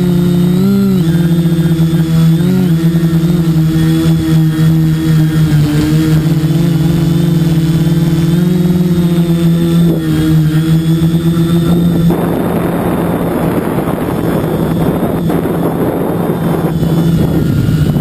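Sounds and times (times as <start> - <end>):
drone propellers humming: 0.0 - 18.0.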